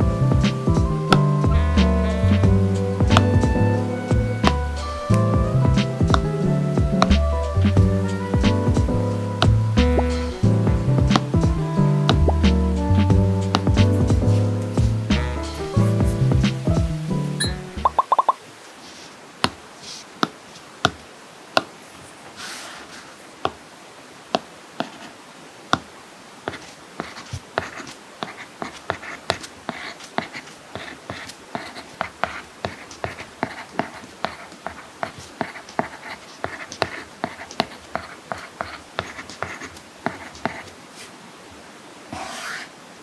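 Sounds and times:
stylus tapping on tablet screen: 0:17.4 - 0:18.4
stylus scratchy stroke: 0:42.1 - 0:42.7.

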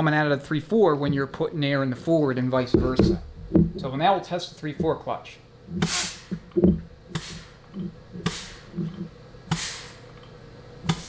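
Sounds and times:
dull low knocks: 0:02.7 - 0:03.9, 0:06.3 - 0:07.0
compressed air hisses: 0:05.8 - 0:06.4, 0:07.1 - 0:07.6, 0:08.2 - 0:08.9, 0:09.5 - 0:10.1.

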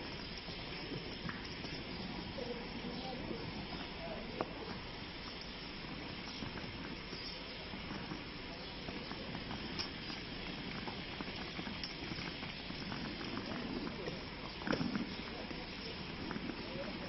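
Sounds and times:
street background noise: 0:00.0 - 0:17.0
faint indistinct voices: 0:01.9 - 0:05.3, 0:12.8 - 0:17.0.

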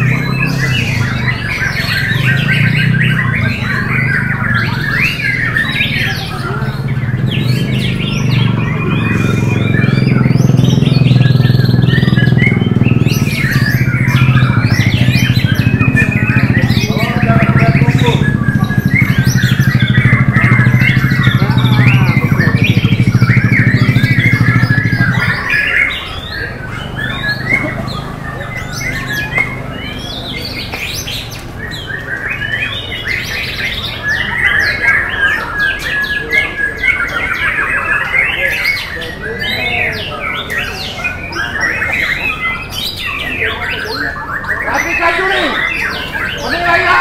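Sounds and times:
loud low hum: 0:00.0 - 0:30.7
songbird whistles and trills: 0:00.0 - 0:46.5.

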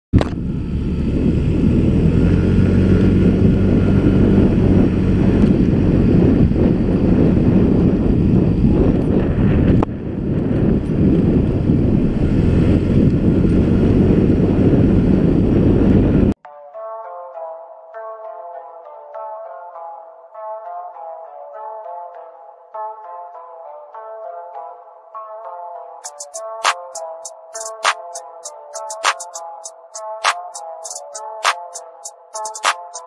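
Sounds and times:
scooter engine: 0:00.2 - 0:06.6, 0:11.4 - 0:16.0
wind buffeting microphone: 0:00.2 - 0:16.4.

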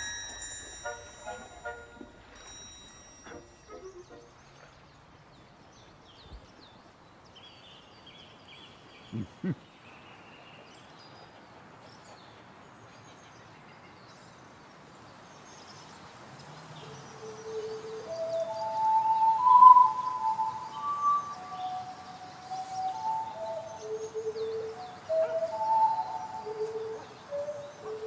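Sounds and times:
faint birdsong: 0:00.0 - 0:28.0
steady hiss: 0:15.0 - 0:28.0
held musical notes rising: 0:17.1 - 0:28.0.

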